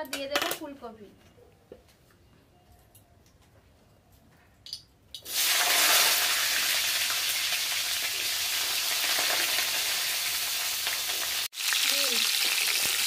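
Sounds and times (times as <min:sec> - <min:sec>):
vegetables sizzling in hot oil: 0:05.3 - 0:13.0.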